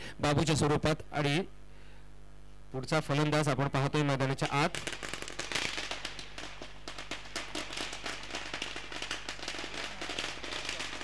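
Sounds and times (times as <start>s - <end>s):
low electrical hum: 0.0s - 11.0s
firecrackers popping: 4.4s - 11.0s.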